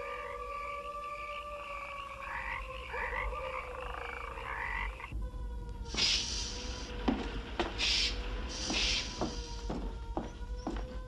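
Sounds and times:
pneumatic door hiss: 0:05.9 - 0:09.7.

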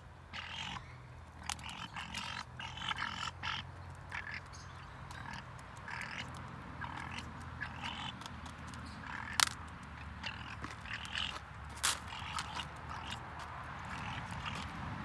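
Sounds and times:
harsh bird calls: 0:00.3 - 0:15.0.

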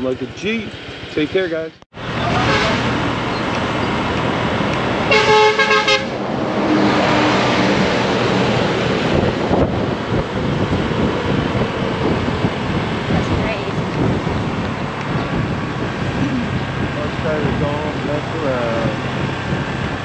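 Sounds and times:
wind and road noise: 0:00.0 - 0:20.0
vehicle horn honking: 0:02.2 - 0:03.0, 0:05.1 - 0:06.2.

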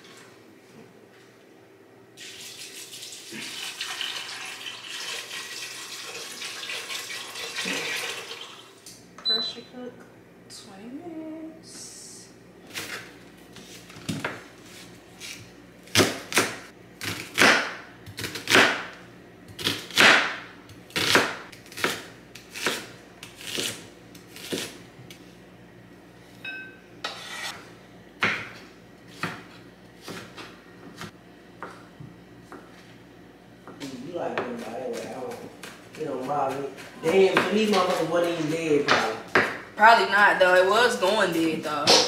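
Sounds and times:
knife chopping on wooden board: 0:15.9 - 0:18.9, 0:19.6 - 0:20.4, 0:28.2 - 0:31.8, 0:36.5 - 0:39.6.

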